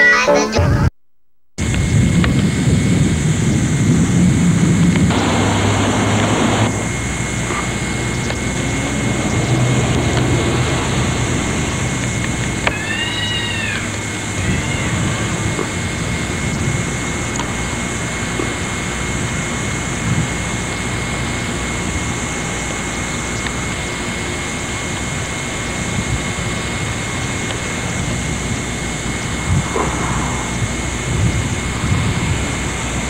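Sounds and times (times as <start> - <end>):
car rumbling in motion: 4.9 - 16.4, 29.0 - 33.0
faint high whine: 11.3 - 33.0.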